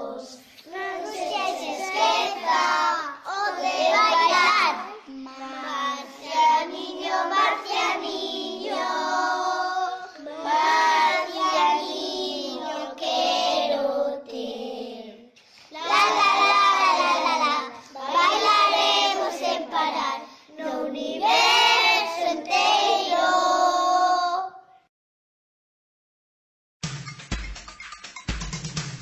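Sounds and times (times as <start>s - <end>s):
children singing: 0.0s - 24.6s.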